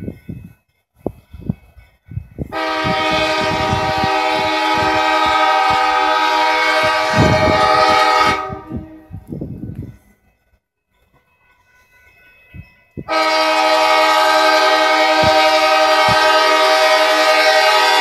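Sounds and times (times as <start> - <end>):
train knocking and rumbling: 0.0 - 18.0
locomotive air horn: 2.5 - 9.2, 13.1 - 18.0.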